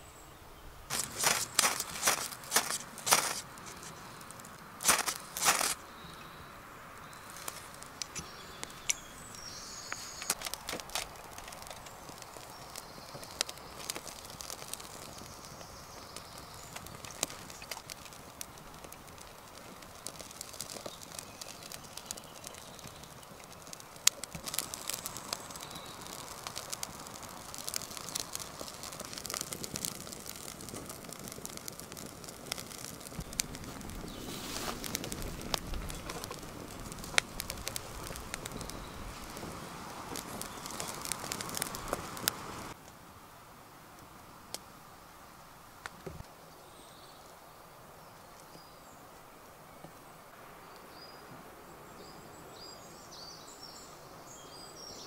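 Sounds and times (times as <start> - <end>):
birds calling: 0.0 - 42.7
wood fire crackling: 0.8 - 51.0
flames rushing: 0.9 - 6.4, 7.0 - 42.8.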